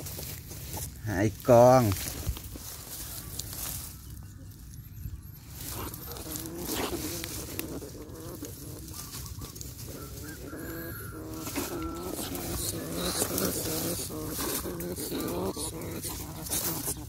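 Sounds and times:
animal calling: 2.6 - 17.0.

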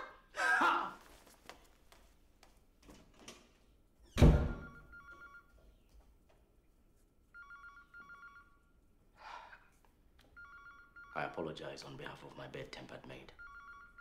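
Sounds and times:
loud thump: 4.2 - 4.7
telephone ringing: 4.5 - 5.6, 7.3 - 8.8, 10.3 - 11.7, 13.3 - 14.0.

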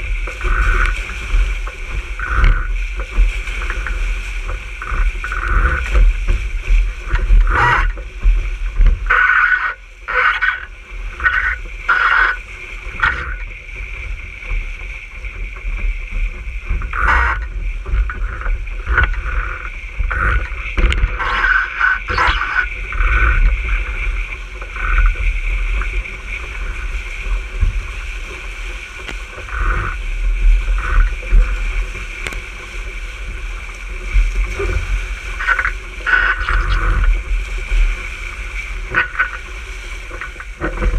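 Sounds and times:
water rushing past hull: 0.0 - 40.9
wind rumble on microphone: 0.0 - 40.9.

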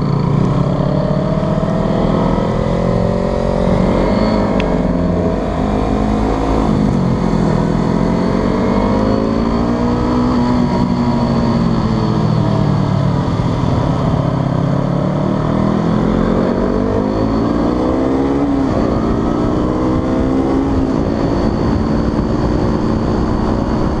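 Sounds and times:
motorcycle engine running: 0.0 - 24.0
wind and road noise: 0.0 - 24.0.

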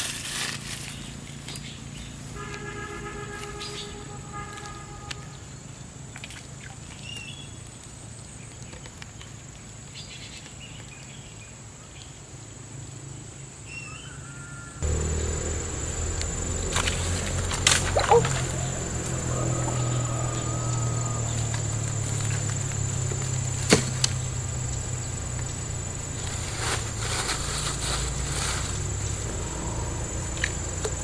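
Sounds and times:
insect drone: 0.0 - 6.0, 12.4 - 31.0
bird chirps: 13.7 - 27.0
low noise: 14.8 - 31.0.

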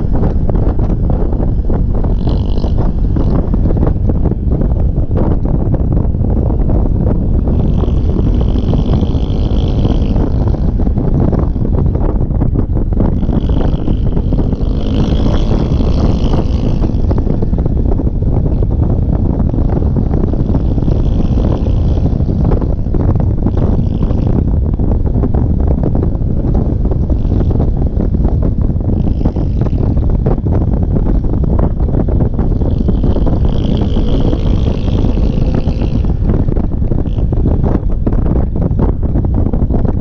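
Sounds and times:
scooter engine and road drone: 0.0 - 40.0
wind rushing over microphone: 0.0 - 40.0.

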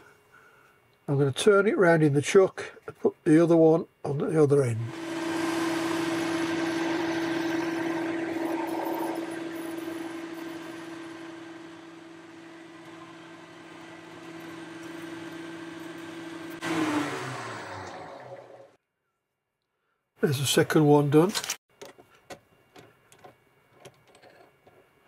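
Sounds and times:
lathe running with steady whine: 4.9 - 18.8
lathe tool cutting steel: 4.9 - 18.8.

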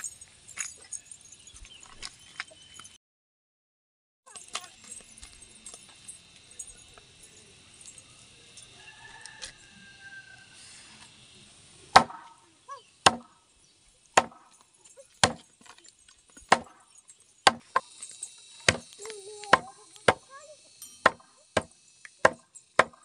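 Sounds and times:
knife chopping on wooden block: 17.5 - 17.9, 18.7 - 18.9, 21.0 - 23.0.

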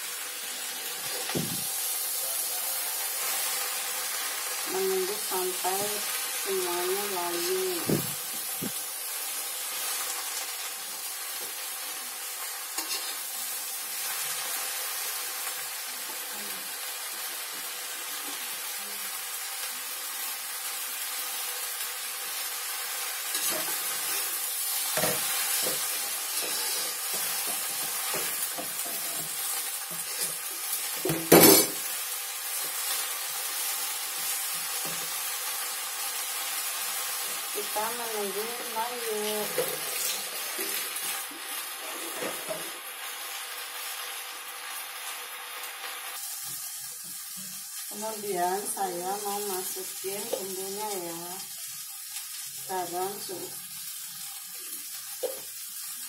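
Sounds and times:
vegetables sizzling in a wok: 0.0 - 56.0
metal spatula scraping wok: 12.8 - 13.3, 23.2 - 30.5, 41.7 - 42.8.

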